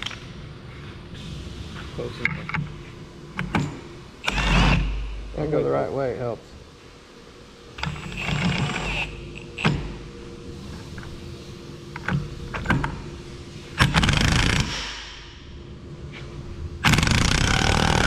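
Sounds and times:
impact wrench bursts: 0:04.2 - 0:05.0, 0:13.8 - 0:15.0, 0:16.8 - 0:18.0.

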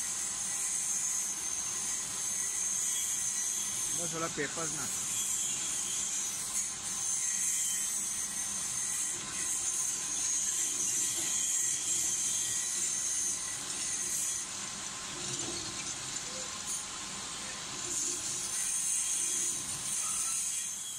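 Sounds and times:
shredder high hiss: 0:02.8 - 0:05.9.

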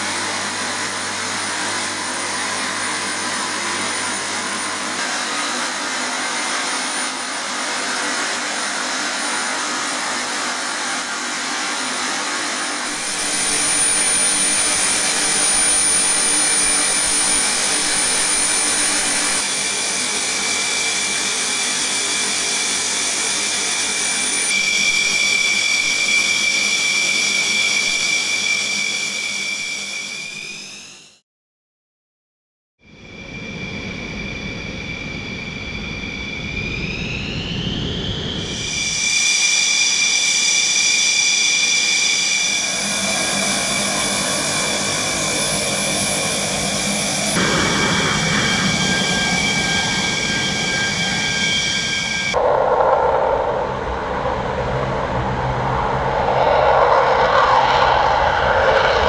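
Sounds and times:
jet engine idling whine: 0:00.0 - 0:31.2, 0:32.8 - 0:59.0
whistling tones: 0:23.9 - 0:30.8, 0:32.9 - 0:47.4, 0:48.0 - 0:52.4.

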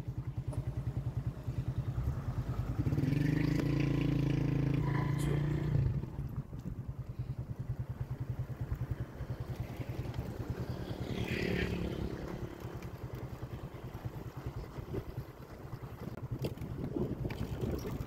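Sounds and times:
small motorcycle engine running: 0:00.0 - 0:18.0
vehicle passing: 0:01.2 - 0:06.4, 0:08.2 - 0:14.8.

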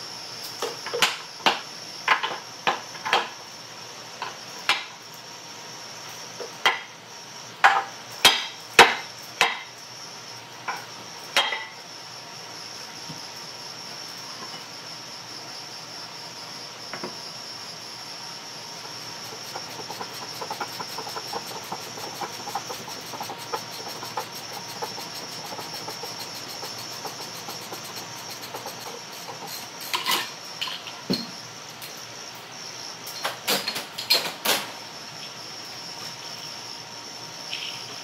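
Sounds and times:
metal parts rubbing and scraping: 0:19.3 - 0:30.3.

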